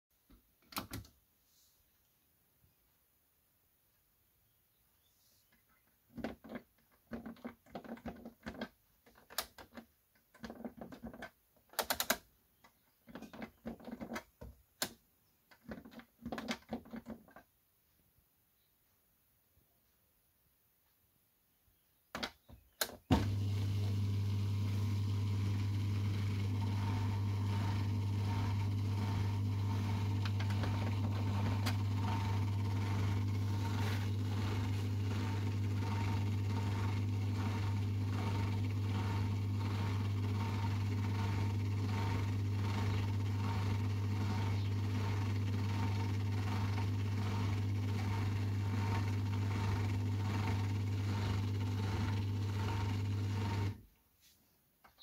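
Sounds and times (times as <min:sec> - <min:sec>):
dishwasher electrical hum: 0:23.1 - 0:53.8.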